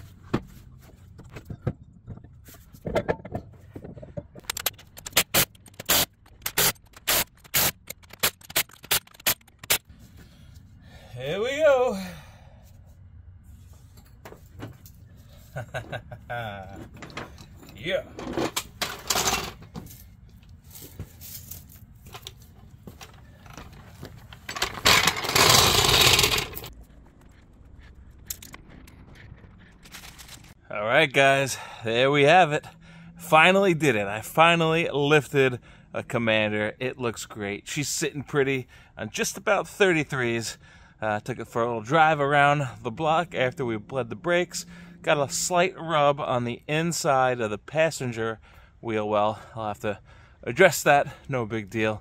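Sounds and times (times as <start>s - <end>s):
floor jack wheels rolling and rattling: 23.0s - 26.7s.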